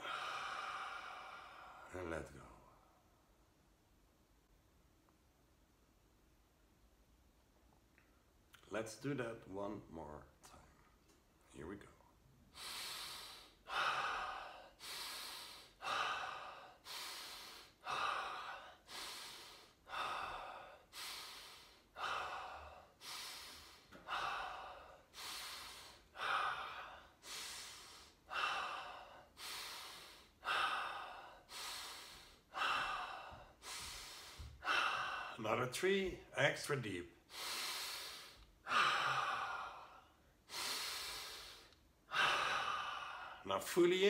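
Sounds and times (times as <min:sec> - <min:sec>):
man breathing forcefully: 0:00.0 - 0:01.9, 0:12.4 - 0:35.4, 0:37.2 - 0:43.4.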